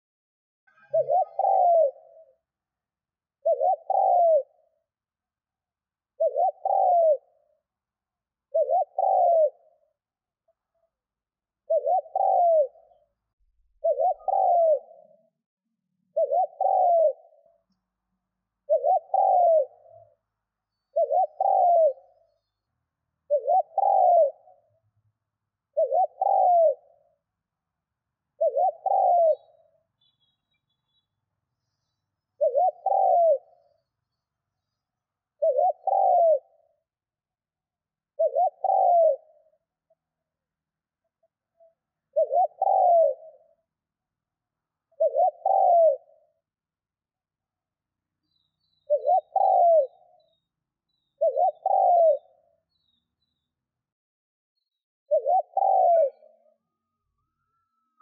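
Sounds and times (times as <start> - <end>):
dove cooing: 0.8 - 2.4, 3.4 - 4.8, 6.2 - 7.5, 8.5 - 9.9, 11.7 - 13.1, 13.7 - 15.3, 16.1 - 17.6, 18.7 - 20.2, 20.9 - 22.4, 23.3 - 24.7, 25.7 - 27.0, 28.4 - 29.8, 32.4 - 33.8, 35.4 - 36.8, 38.1 - 39.6, 42.1 - 43.6, 44.9 - 46.4, 48.9 - 50.4, 51.2 - 52.6, 55.1 - 58.0.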